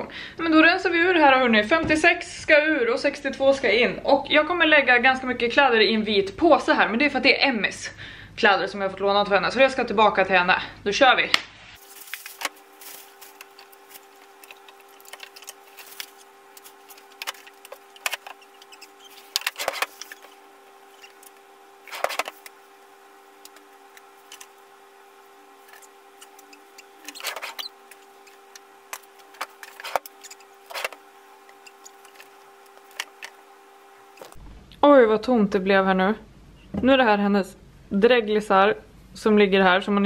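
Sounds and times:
faint steady hum: 0.0 - 40.0
clothes rustling: 11.6 - 22.6
plastic bag crinkling: 11.8 - 24.7, 25.5 - 33.4.

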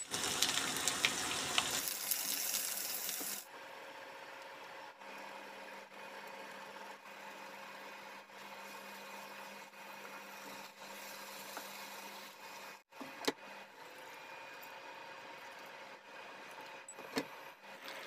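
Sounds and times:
food frying in a pan: 0.0 - 3.5, 8.4 - 12.8.

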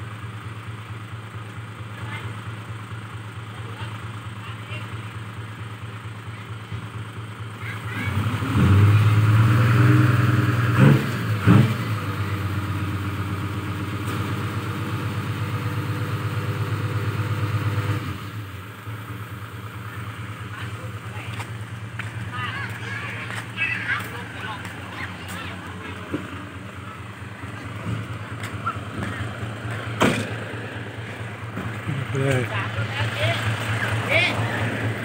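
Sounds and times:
diesel truck engine idling and revving: 0.0 - 35.0.

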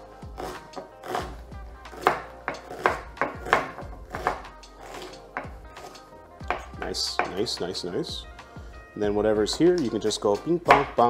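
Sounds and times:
background music: 0.0 - 11.0
knife chopping on wooden board: 0.4 - 7.4, 10.6 - 11.0.

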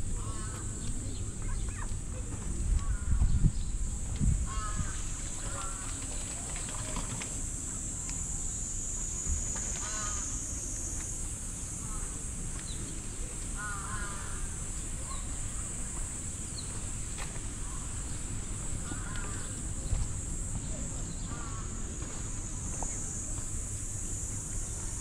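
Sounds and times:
high-pitched insect drone: 3.7 - 16.7.

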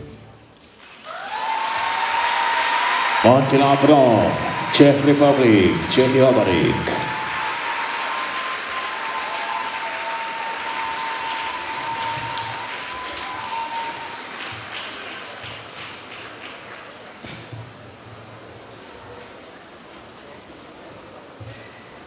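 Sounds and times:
audience applauding: 0.6 - 17.2.

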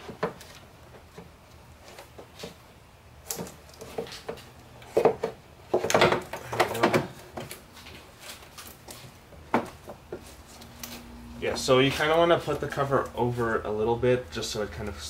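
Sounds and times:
plastic knocks and clacks: 3.3 - 7.6.

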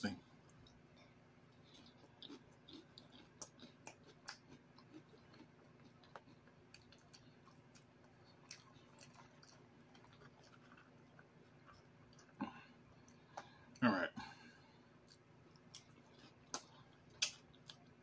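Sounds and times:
chewing chips: 0.4 - 13.8, 15.0 - 18.0
soft mouth clicks and smacks: 15.0 - 18.0.

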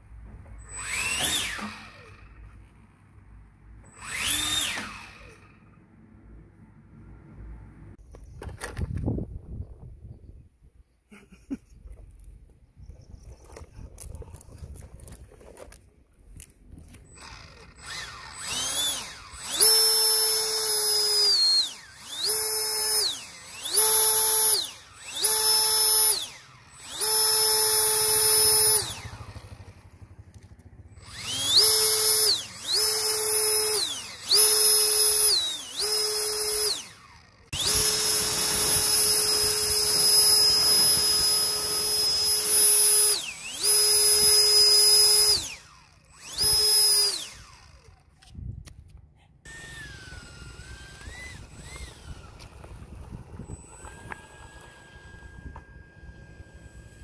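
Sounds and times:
electric ducted fan whining: 16.9 - 48.1, 49.5 - 57.0.

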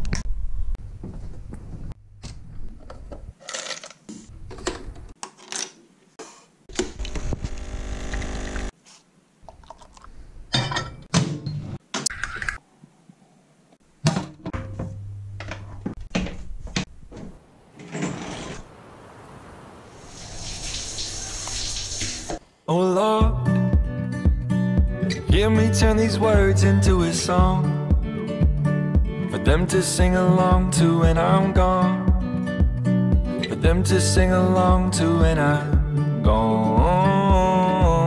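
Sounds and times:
coffee capsules clattering: 3.4 - 4.0.

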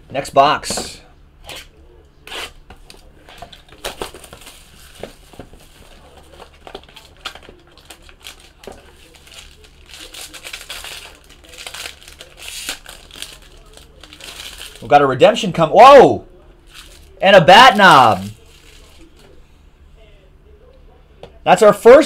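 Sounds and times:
plastic wrapping crinkling: 3.5 - 14.9, 16.6 - 19.4.

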